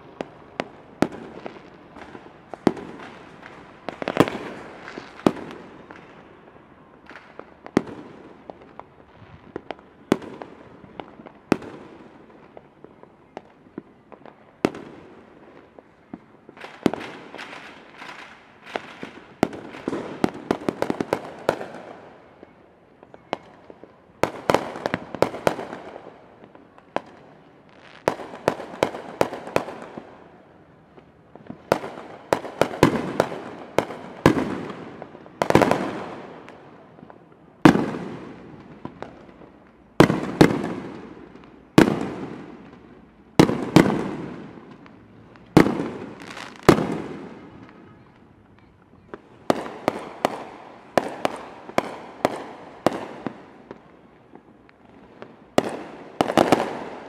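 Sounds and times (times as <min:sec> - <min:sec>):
firework crackles: 0:00.0 - 0:57.0
firework bangs with echo: 0:40.0 - 0:42.8, 0:43.4 - 0:44.8, 0:45.5 - 0:47.8.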